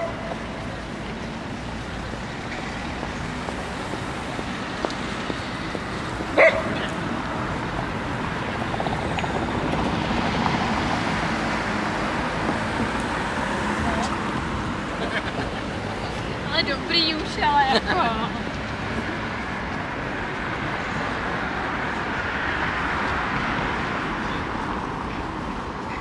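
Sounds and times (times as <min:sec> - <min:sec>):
city street background noise: 0:00.0 - 0:26.0
dog barking: 0:06.4 - 0:06.8.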